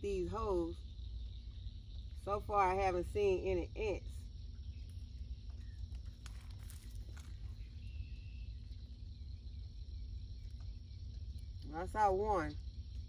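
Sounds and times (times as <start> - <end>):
low outdoor rumble: 0.0 - 13.0
fingers pressing seeds into soil: 4.8 - 8.2.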